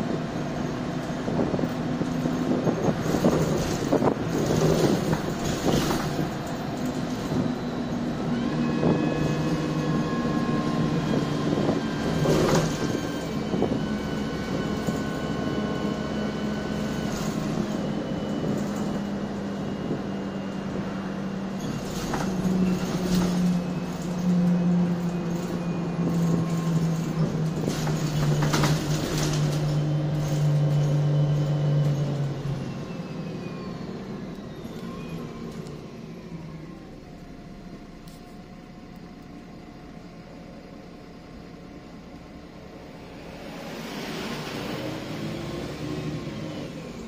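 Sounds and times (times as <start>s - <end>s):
bus engine and gearbox whine: 0.0s - 47.0s
body and fittings rattling: 21.7s - 31.0s.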